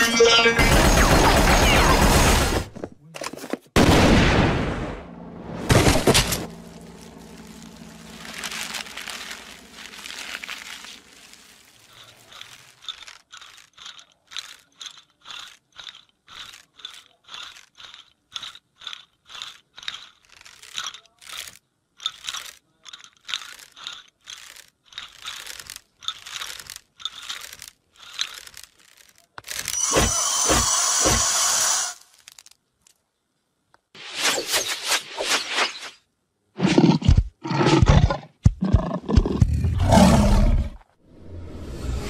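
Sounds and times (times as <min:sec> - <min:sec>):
rattling skeleton bones: 0:06.0 - 0:33.0.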